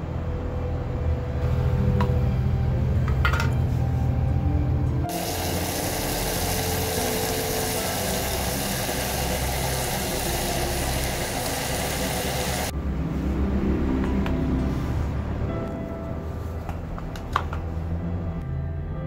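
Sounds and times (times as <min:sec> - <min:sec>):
gas camping stove hissing: 0:05.1 - 0:12.7.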